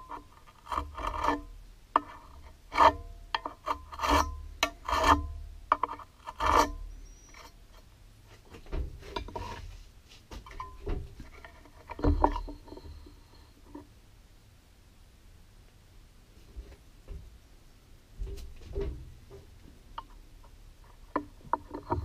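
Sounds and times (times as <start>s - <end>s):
metal jaw scraping aluminium: 0.0s - 7.8s, 10.5s - 13.8s.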